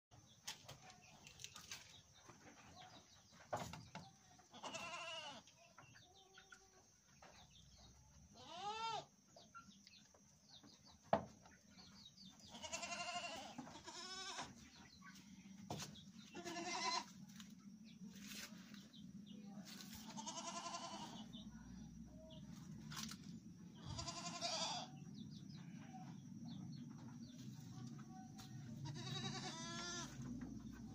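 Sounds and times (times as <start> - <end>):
goats bleating: 4.5 - 5.4, 8.4 - 9.1, 12.5 - 14.5, 16.4 - 17.1, 20.1 - 21.2, 23.8 - 24.9, 28.8 - 30.2.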